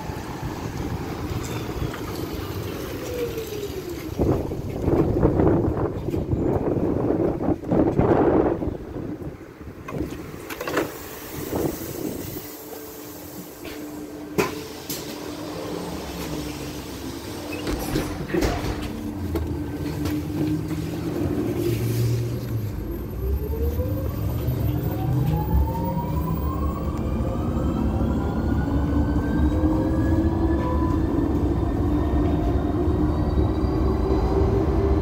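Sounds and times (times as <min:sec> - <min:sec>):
road rumble: 0:00.0 - 0:35.0.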